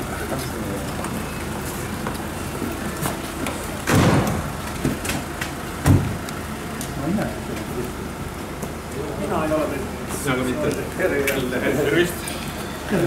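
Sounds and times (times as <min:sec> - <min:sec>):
car doors thudding shut: 0:03.8 - 0:05.1, 0:05.8 - 0:06.2.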